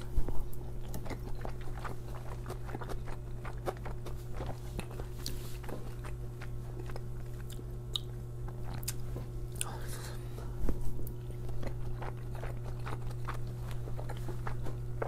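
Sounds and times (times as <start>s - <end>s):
steady low hum: 0.0s - 15.0s
mouth chewing clicks and smacks: 0.5s - 9.8s, 11.0s - 14.7s.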